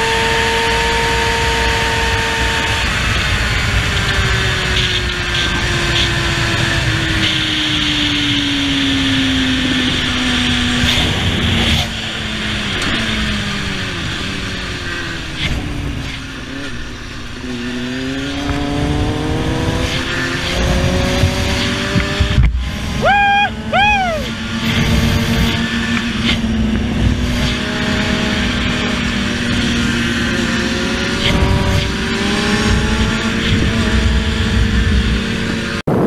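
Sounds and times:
motorcycle engine: 0.0 - 36.0
wind and road noise: 0.0 - 36.0.

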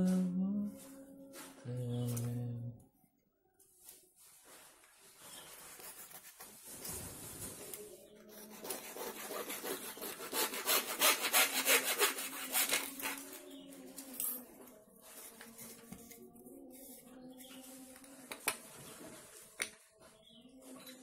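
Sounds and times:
hacksaw sawing plastic pipe: 8.3 - 13.3.

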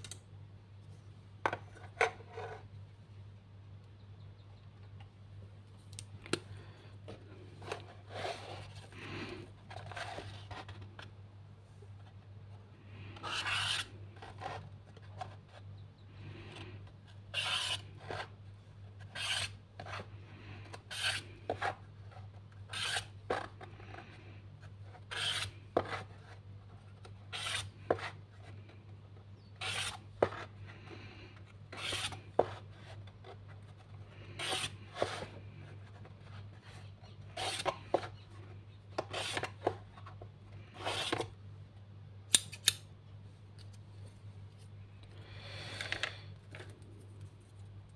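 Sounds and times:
marker scratching along ruler: 13.2 - 14.6, 17.3 - 18.3, 19.0 - 20.0, 20.9 - 21.7, 22.7 - 23.5, 25.1 - 26.1, 27.3 - 28.2, 29.6 - 30.5, 31.7 - 33.0, 34.3 - 35.3, 37.3 - 38.0, 39.1 - 39.5.

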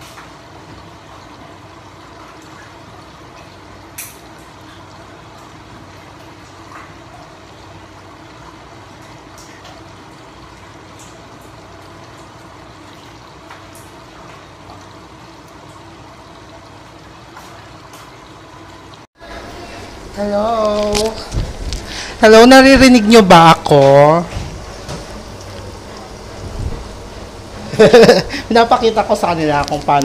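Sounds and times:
tomatoes simmering hiss: 19.2 - 30.0.

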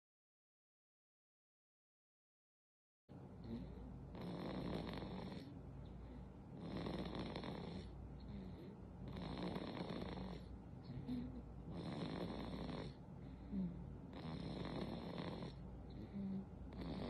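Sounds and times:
infant snoring: 3.4 - 5.6, 6.5 - 17.0.

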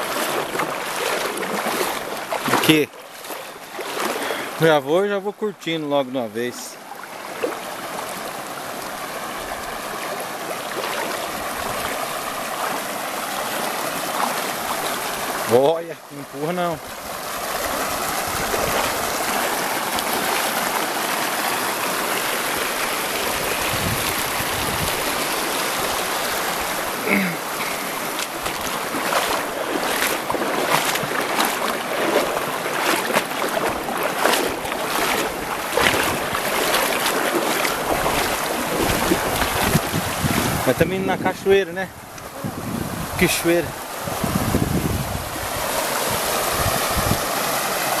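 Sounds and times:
river rushing over rocks: 0.0 - 4.8, 6.8 - 48.0.

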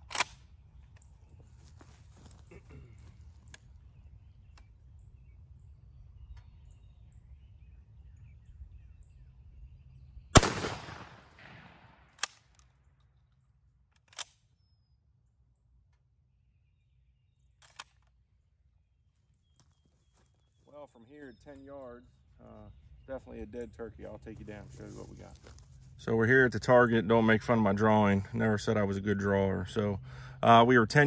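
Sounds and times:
shotgun shot echoing: 10.4 - 12.3.

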